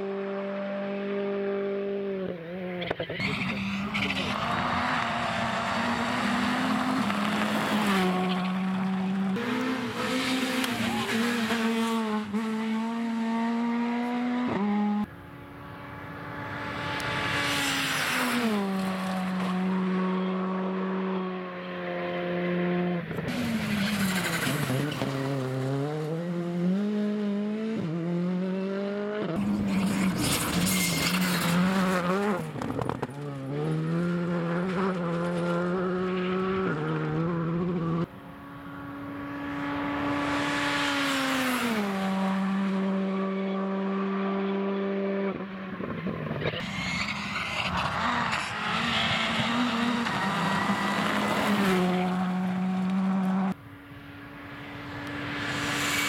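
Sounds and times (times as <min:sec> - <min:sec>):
rally car engines revving: 0:00.0 - 0:56.0
tyre and road noise: 0:02.1 - 0:27.1, 0:29.2 - 0:56.0.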